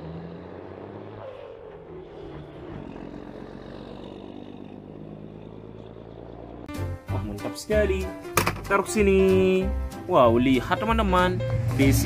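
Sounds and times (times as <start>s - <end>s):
truck diesel engine running: 0.0s - 7.0s.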